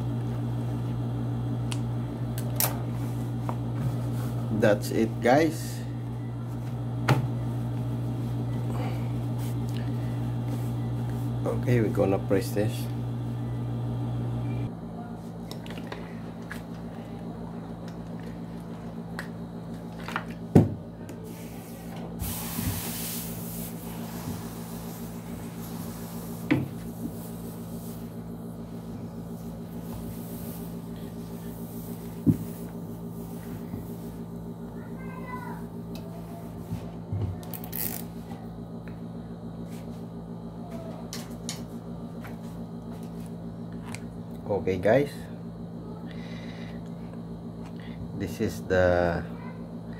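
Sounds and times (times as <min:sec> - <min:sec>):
steady low hum: 0:00.0 - 0:49.9
steam iron hissing: 0:21.3 - 0:28.2.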